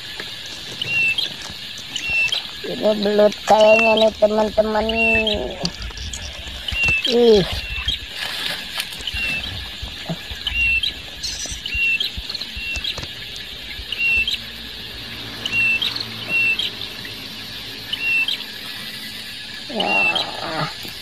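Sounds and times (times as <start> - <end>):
high insect-like hiss: 0.0 - 21.0
short high chirping calls: 10.4 - 13.0.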